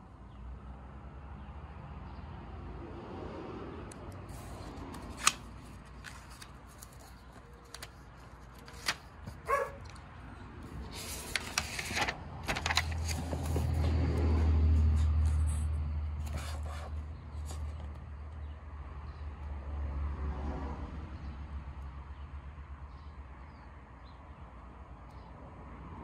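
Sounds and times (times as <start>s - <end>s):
paper rustling: 4.3s - 10.0s, 10.7s - 13.9s, 16.2s - 18.0s
dog bark: 9.4s - 9.9s.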